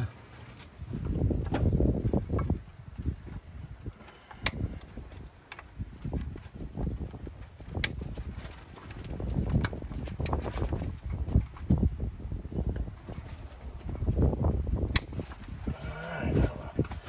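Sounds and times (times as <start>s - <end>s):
sharp plastic clicks: 4.3s - 6.4s, 14.9s - 15.4s.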